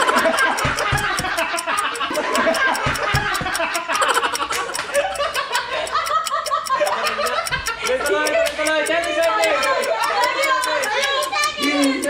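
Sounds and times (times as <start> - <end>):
music with fast beat: 0.0 - 5.8
group of people laughing: 0.0 - 12.0.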